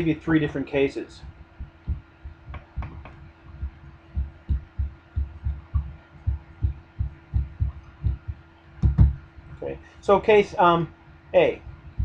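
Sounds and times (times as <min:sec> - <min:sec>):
faint steady hum: 0:00.0 - 0:12.0
marker knocking on whiteboard: 0:02.5 - 0:03.2, 0:07.4 - 0:09.2.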